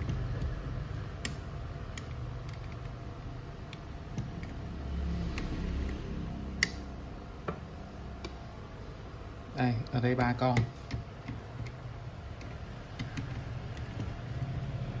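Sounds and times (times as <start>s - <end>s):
low steady hum: 0.0s - 15.0s
screwdriver clicks and taps on metal: 9.8s - 11.8s, 12.4s - 14.2s.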